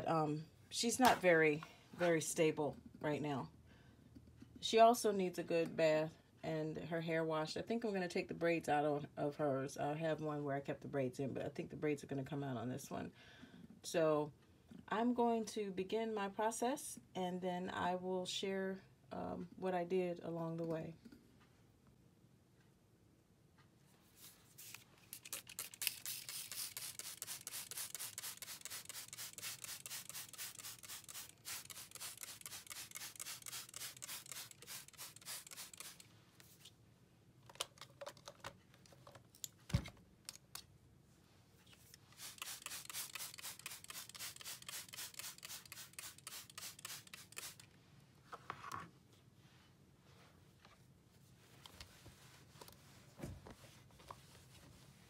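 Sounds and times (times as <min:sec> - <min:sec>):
trigger spray bottle spraying: 0:24.6 - 0:36.1, 0:42.0 - 0:47.7.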